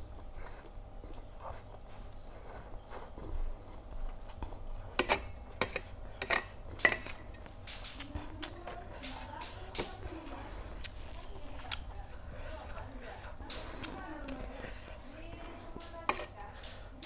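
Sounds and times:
fork scraping tray: 4.9 - 7.4, 15.7 - 16.4
metal fork clinking on tray: 16.1 - 16.4.

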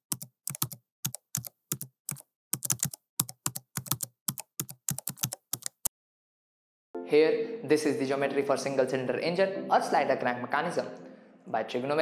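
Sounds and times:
keyboard typing clicks: 0.1 - 5.9.

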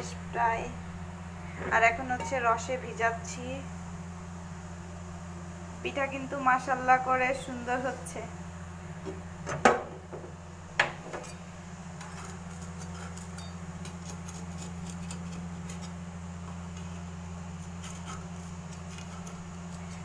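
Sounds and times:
steady low hum: 0.0 - 20.0
metal spatula scraping clay pan: 12.0 - 20.0.

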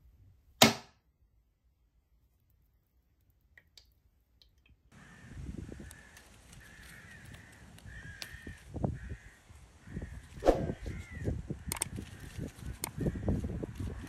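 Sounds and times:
sharp snap: 0.6 - 1.0
bird cawing: 4.9 - 14.0
leaves rustling: 5.0 - 14.0.

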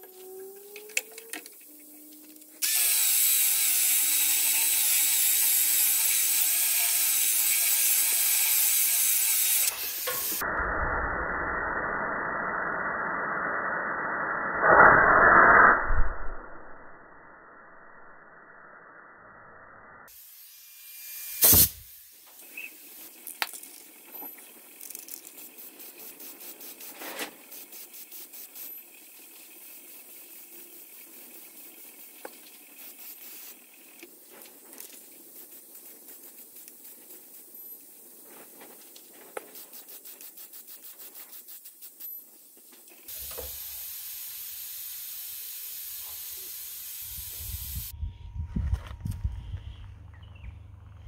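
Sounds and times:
low rumbling noise: 10.4 - 20.1, 47.1 - 51.0
steady hissing: 21.2 - 48.0.

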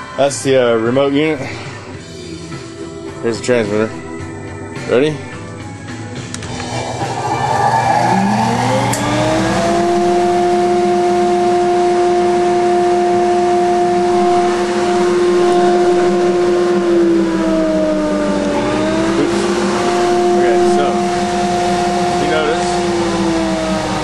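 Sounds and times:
dust collector motor whining: 6.2 - 24.0.

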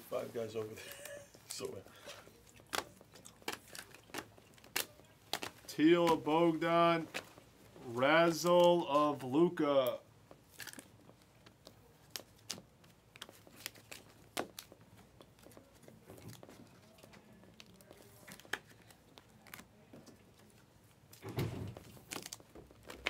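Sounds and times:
trading cards clicking and rustling: 1.0 - 7.4.

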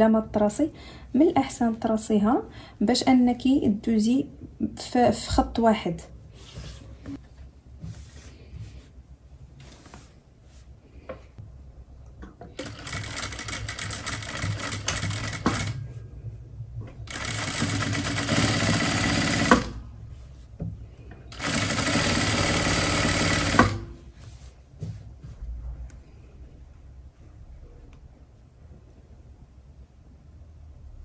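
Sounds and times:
sewing machine stitching: 12.6 - 15.8, 17.1 - 19.8, 21.3 - 23.9.

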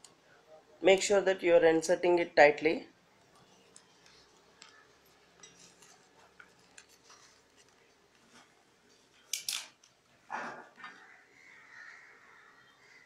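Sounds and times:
paper tubes clicking and rustling: 3.3 - 10.0.

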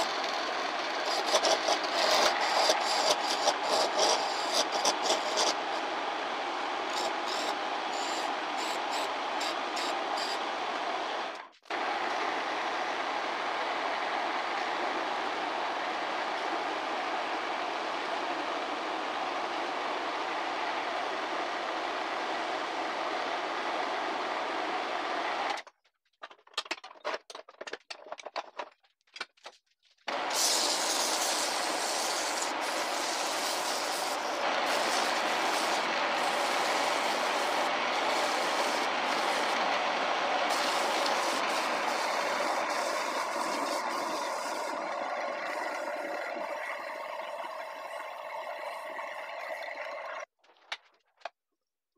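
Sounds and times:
wood lathe running: 0.0 - 6.0, 6.8 - 16.5, 30.1 - 48.2.

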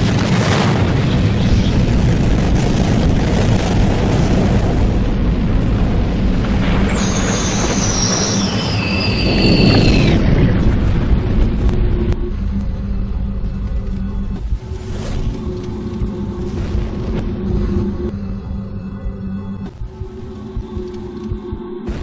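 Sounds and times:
loud dense rumble: 0.0 - 22.0
low drone: 0.0 - 22.0
high whistling tone gliding downward: 6.9 - 10.7.

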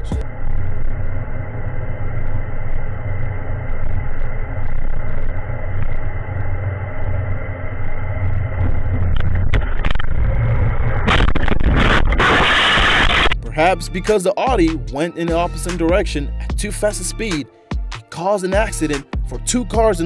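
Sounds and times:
car cabin road and engine drone: 0.0 - 13.6.

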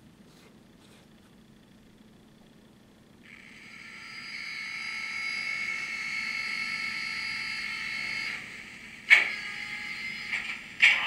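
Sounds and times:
model locomotive high tones: 3.3 - 10.6.

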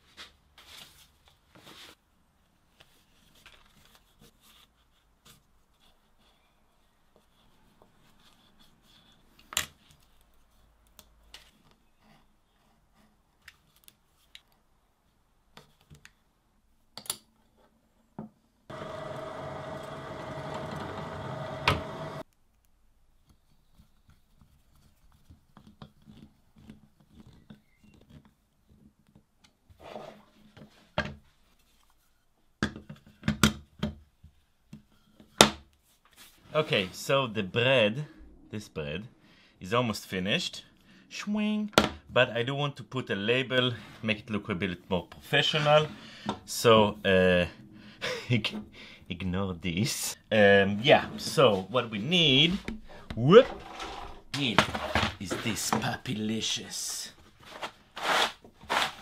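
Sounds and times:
drill press whine: 18.7 - 22.2.

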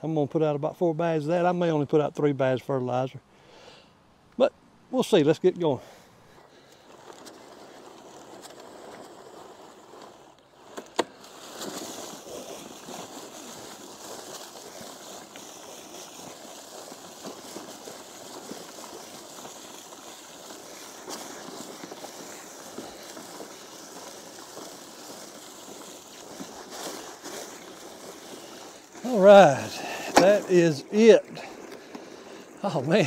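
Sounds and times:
spreader pellets rattling: 6.9 - 33.0.

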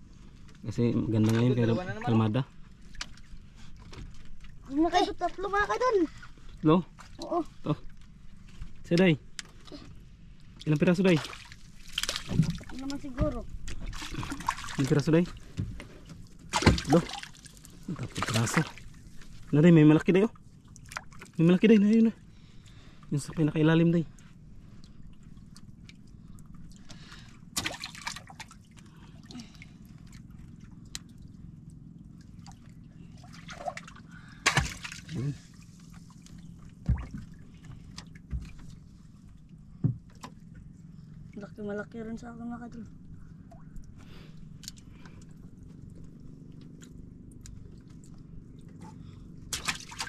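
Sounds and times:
steady low hum: 0.0 - 50.0
water lapping against boat: 0.0 - 50.0
water splash: 11.1 - 12.8, 16.5 - 18.8, 27.6 - 28.6, 33.2 - 35.4, 49.5 - 50.0.

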